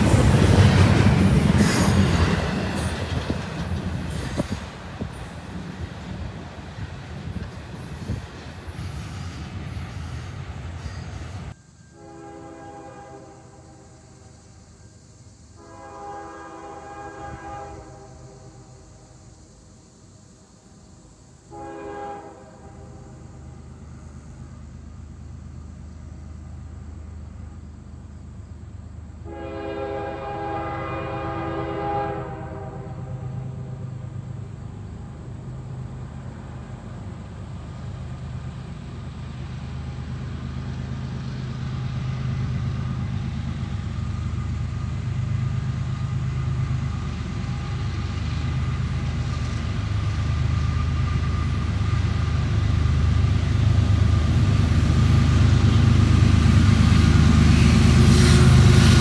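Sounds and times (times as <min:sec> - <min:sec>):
locomotive horn blasts: 0:11.9 - 0:14.0, 0:15.6 - 0:18.7, 0:21.5 - 0:23.1, 0:29.2 - 0:33.4.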